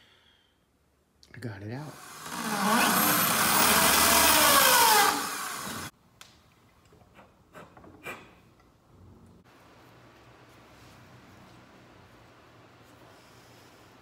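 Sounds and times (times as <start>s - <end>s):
electric drill drilling into wood: 2.0s - 5.9s.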